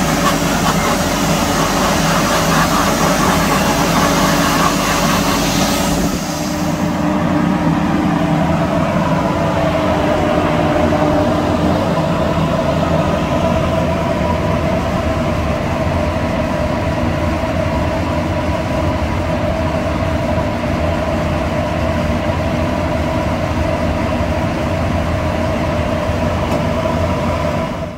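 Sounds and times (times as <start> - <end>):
steady whining tones: 0.0 - 16.6
machinery drone: 0.0 - 27.9.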